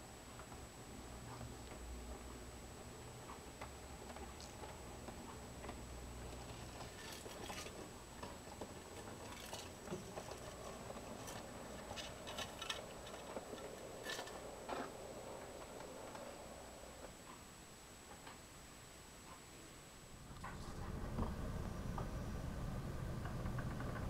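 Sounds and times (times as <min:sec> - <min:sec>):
wheels clicking over rail joints: 0:06.4 - 0:16.3, 0:23.0 - 0:24.0.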